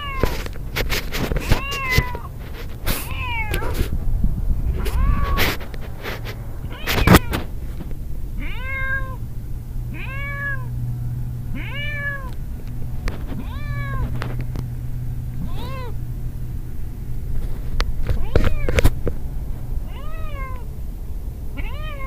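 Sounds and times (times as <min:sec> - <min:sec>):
cat meowing: 0:00.0 - 0:00.4, 0:01.4 - 0:02.4, 0:03.0 - 0:03.9, 0:04.7 - 0:05.6, 0:06.6 - 0:07.5, 0:08.4 - 0:09.2, 0:09.9 - 0:10.8, 0:11.5 - 0:12.4, 0:13.2 - 0:14.2, 0:15.4 - 0:16.0, 0:18.1 - 0:18.9, 0:19.8 - 0:20.8, 0:21.6 - 0:22.0.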